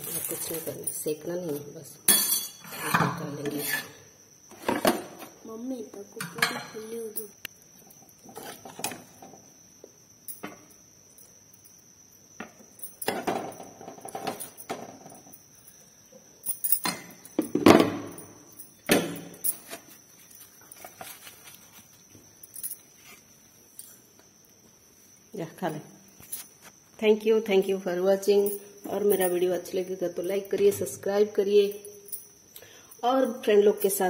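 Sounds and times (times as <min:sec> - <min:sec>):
spoon clinking and scraping metal: 0:02.1 - 0:04.0.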